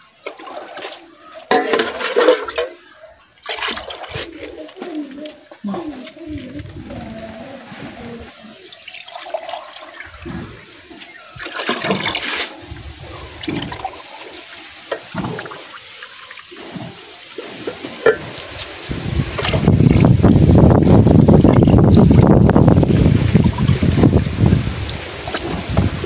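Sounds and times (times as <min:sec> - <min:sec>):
liquid pouring and splashing: 0:00.0 - 0:02.8, 0:03.4 - 0:04.9, 0:08.5 - 0:26.0.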